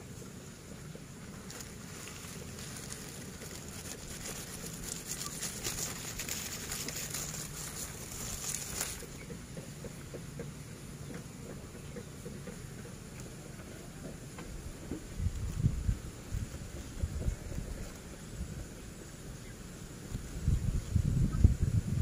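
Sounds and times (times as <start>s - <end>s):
dry leaves rustling: 0.0s - 9.5s
low outdoor hum: 0.0s - 22.0s.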